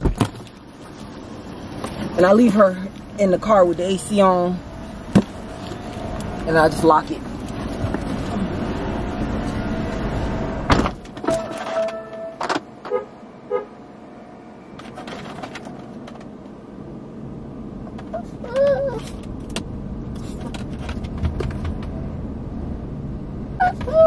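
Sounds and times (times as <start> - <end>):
car engine and air conditioning hum: 0.0 - 24.0
small dog whimpering: 18.1 - 19.1, 23.6 - 24.0.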